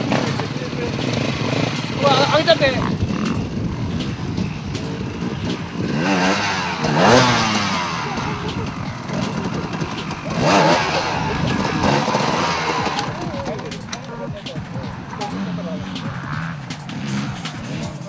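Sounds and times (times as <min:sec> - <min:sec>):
dirt bike engine revving: 0:00.0 - 0:18.0.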